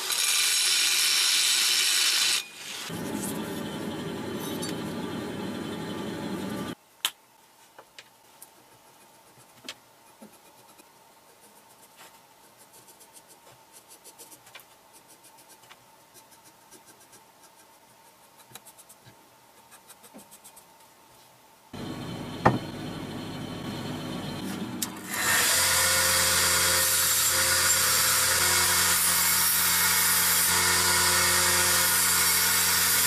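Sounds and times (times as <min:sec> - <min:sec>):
marker scratching on paper: 0:08.8 - 0:20.8.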